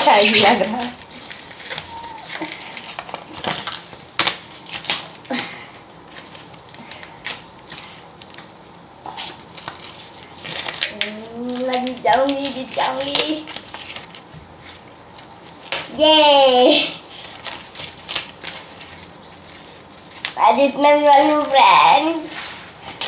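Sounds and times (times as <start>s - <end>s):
corn husks ripping: 9.1s - 16.3s, 17.1s - 20.4s.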